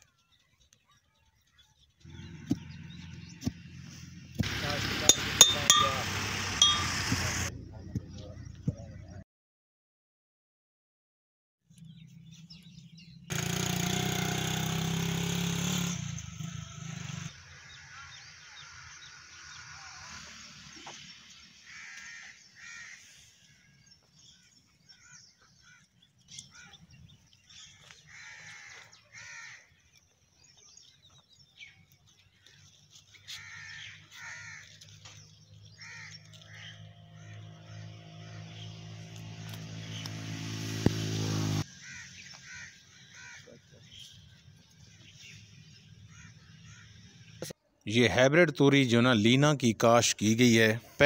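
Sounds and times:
crows cawing: 0:17.5 - 0:19.0, 0:21.6 - 0:26.9, 0:27.5 - 0:30.0, 0:32.4 - 0:38.7, 0:41.7 - 0:44.0, 0:46.0 - 0:47.3.

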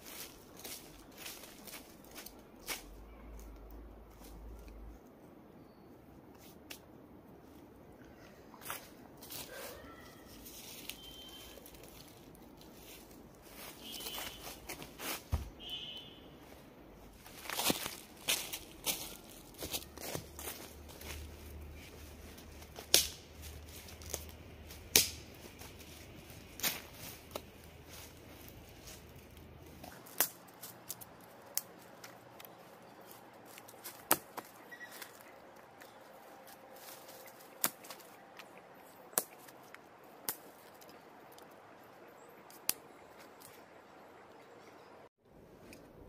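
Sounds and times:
twigs snapping: 0:22.3 - 0:41.6, 0:42.4 - 0:43.6.

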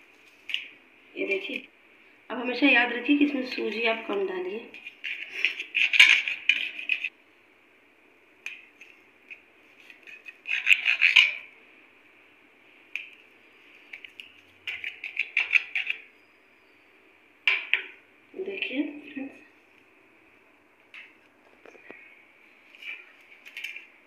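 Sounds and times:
knife scraping on steel plate: 0:09.8 - 0:11.5.

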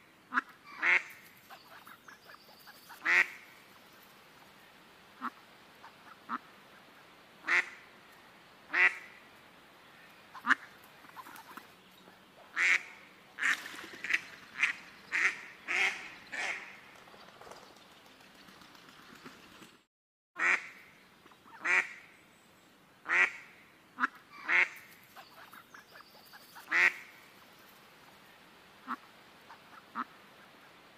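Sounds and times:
ducks calling: 0:00.3 - 0:03.6, 0:10.3 - 0:16.8, 0:23.1 - 0:27.4.

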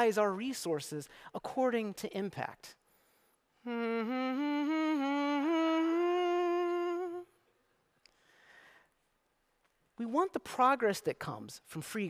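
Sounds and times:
slow mournful voice-like melody: 0:03.6 - 0:07.4.

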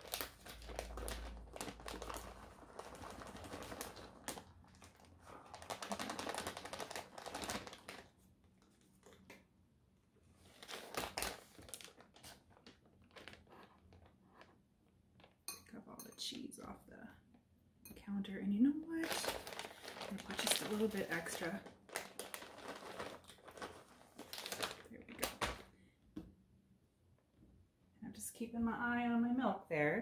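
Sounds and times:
plastic bag crinkling: 0:00.0 - 0:08.3, 0:10.4 - 0:14.6, 0:18.9 - 0:25.7.

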